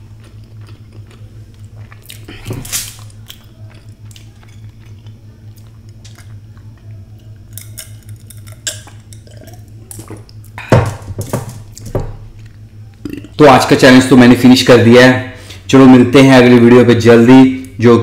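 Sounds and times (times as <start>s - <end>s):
steady low hum: 0.0s - 18.0s
person sipping and swallowing: 0.2s - 2.9s, 9.1s - 10.7s.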